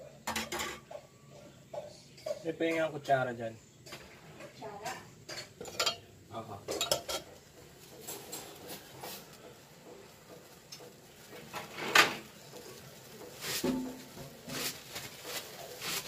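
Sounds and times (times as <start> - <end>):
oil crackling in hot wok: 5.2 - 16.0.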